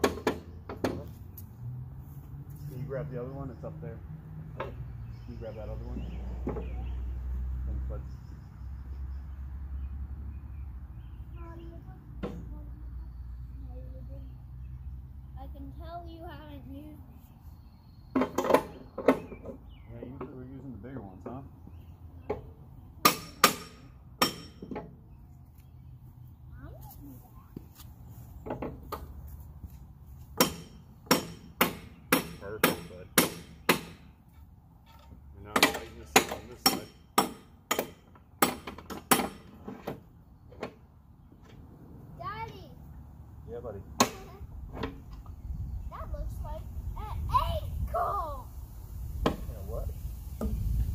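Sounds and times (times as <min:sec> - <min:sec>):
ringing metal knocks: 0:22.3 - 0:24.9.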